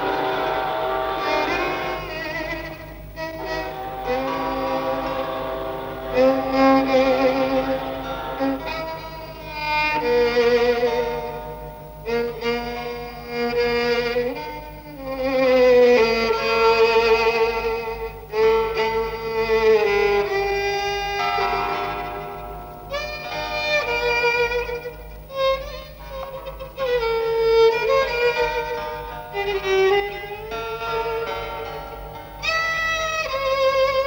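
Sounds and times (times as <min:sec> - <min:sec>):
slow violin melody: 0:00.0 - 0:34.0.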